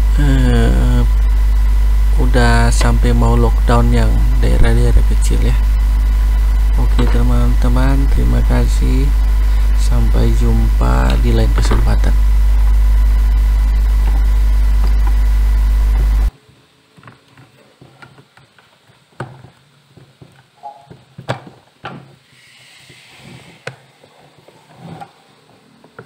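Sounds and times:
loud steady low hum: 0.0 - 16.8.

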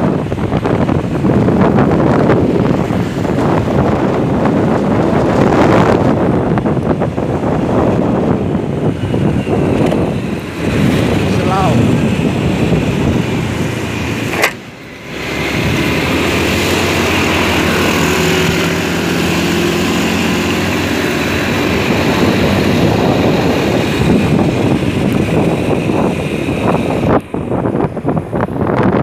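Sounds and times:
motorcycle engine running: 0.0 - 29.0
wind buffeting microphone: 0.0 - 29.0
sharp click: 14.3 - 14.6.

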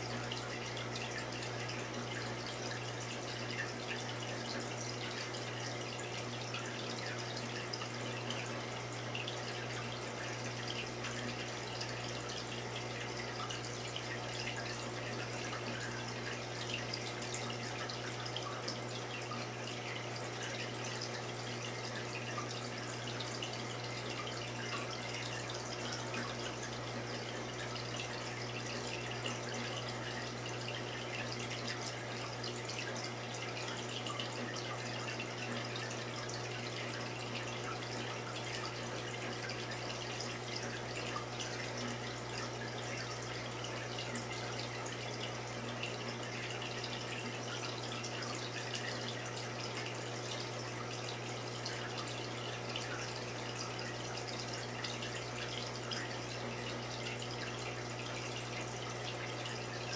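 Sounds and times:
low pump hum: 0.0 - 59.9
water trickling and bubbling: 0.0 - 59.9.

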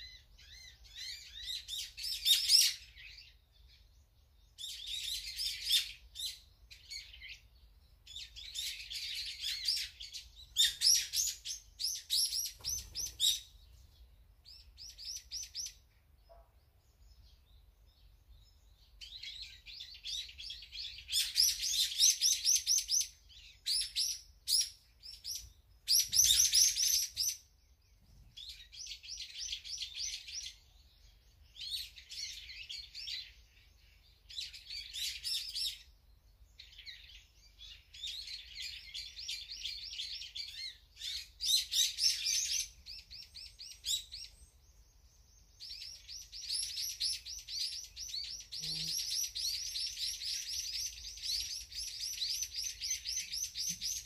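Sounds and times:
songbirds chirping: 0.0 - 54.0.

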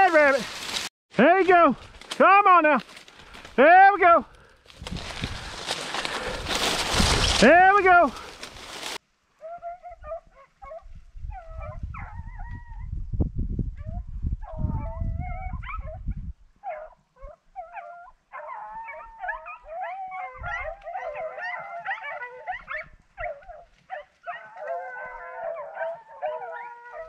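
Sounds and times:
dogs baying and howling: 9.4 - 12.9, 13.8 - 16.0, 16.6 - 27.0.

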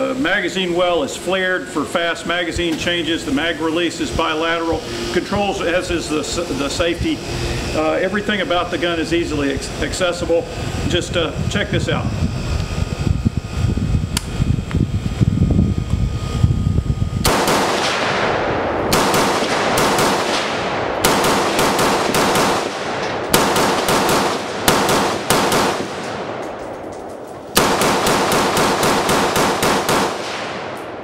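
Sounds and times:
rifle shots with echo: 17.2 - 31.0.

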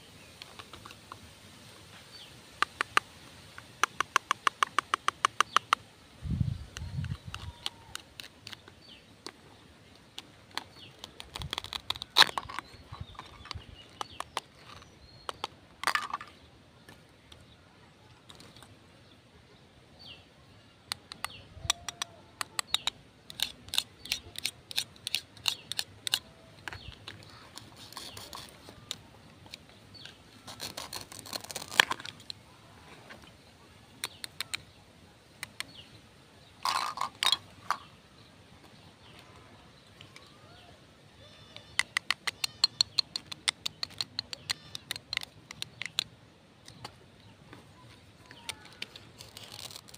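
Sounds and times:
plastic toy pieces clicking: 7.0 - 8.8, 10.2 - 16.3, 20.9 - 29.6, 36.6 - 37.8, 41.7 - 46.9, 48.3 - 49.9.

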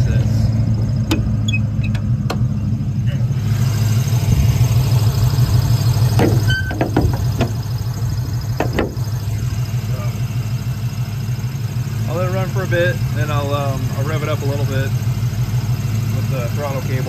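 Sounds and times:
car engine idling roughly: 0.0 - 17.0
hood latch clicks and knocks: 6.1 - 7.6, 8.6 - 9.0.

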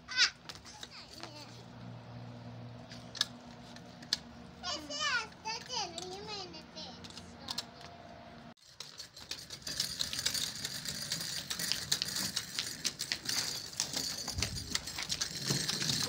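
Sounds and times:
tricycle rattling over concrete: 3.0 - 6.4, 8.6 - 16.0.

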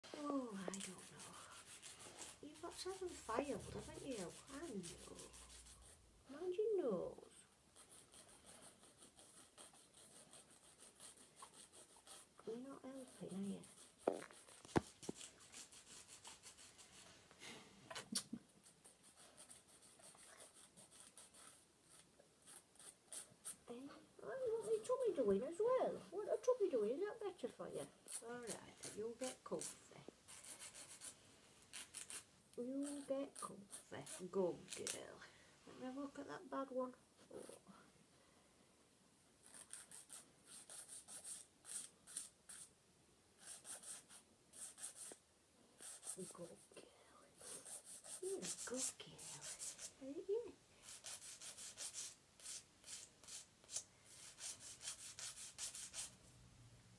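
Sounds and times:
nail file rasping on toenails: 0.2 - 6.0, 7.8 - 17.1, 17.9 - 23.6, 24.4 - 25.4, 28.0 - 35.0, 39.4 - 42.7, 43.4 - 45.2, 45.8 - 46.6, 47.4 - 50.2, 50.8 - 56.2.

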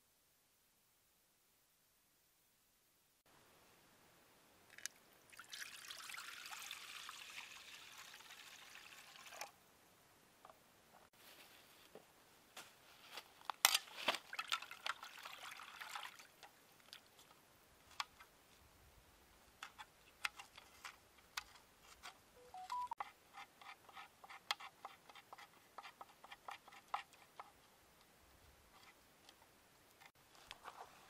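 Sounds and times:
pieces splashing into liquid: 14.1 - 17.0.

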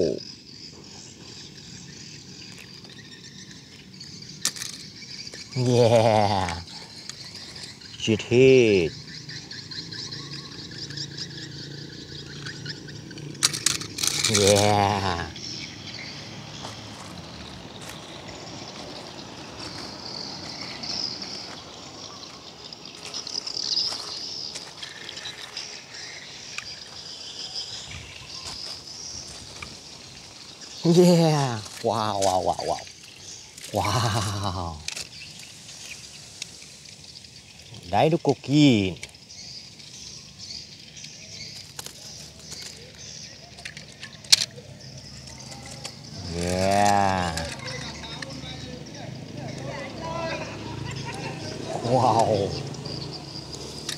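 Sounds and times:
small clicks: 12.2 - 14.7, 41.0 - 48.4
footsteps crunching on gravel: 16.4 - 33.8
steady high hiss: 20.3 - 40.8.

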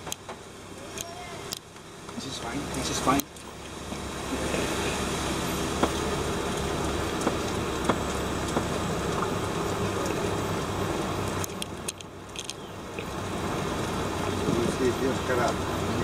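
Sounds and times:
slow vehicle engine and tyres: 0.0 - 16.0.

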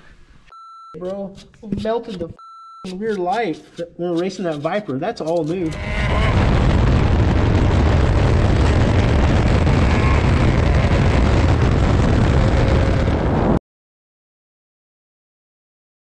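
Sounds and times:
wind buffeting microphone: 5.7 - 13.6.

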